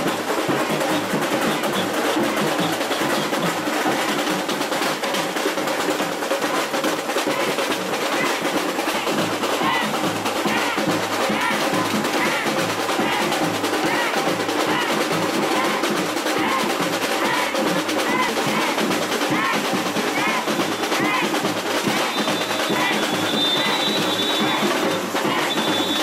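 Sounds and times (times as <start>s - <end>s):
snare drums rattling: 0.0s - 26.0s
bass drums: 7.3s - 26.0s.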